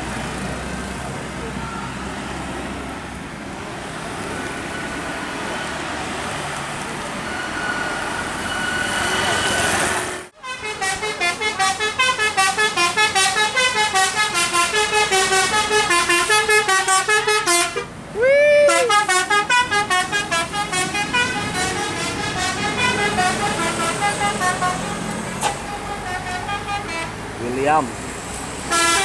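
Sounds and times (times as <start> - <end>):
multi-tone bus horn melody: 8.9 - 18.0, 18.6 - 27.3, 28.6 - 29.0.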